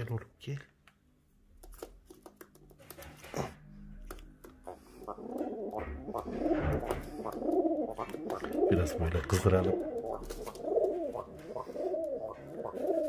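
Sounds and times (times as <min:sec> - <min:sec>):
pigeon cooing: 0:04.6 - 0:13.0.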